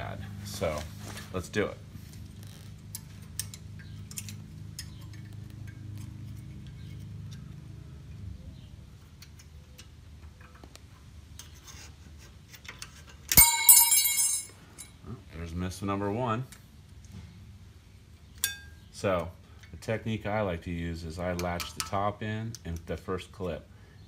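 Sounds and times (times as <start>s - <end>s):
low steady hum: 0.0s - 24.0s
metallic clicks and scrapes: 2.1s - 8.3s, 9.0s - 13.4s.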